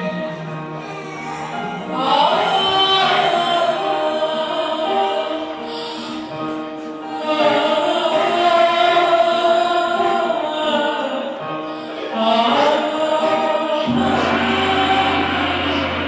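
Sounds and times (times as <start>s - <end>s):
choir holding long notes: 0.0s - 16.0s.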